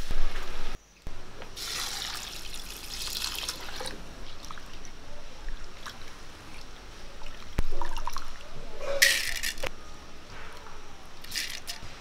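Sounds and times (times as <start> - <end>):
water pouring into a pot: 1.6 - 4.8.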